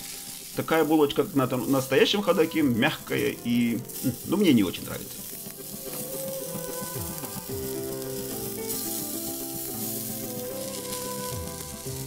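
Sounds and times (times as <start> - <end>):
food sizzling on a grill: 0.0 - 12.0
slow background music: 0.0 - 12.0.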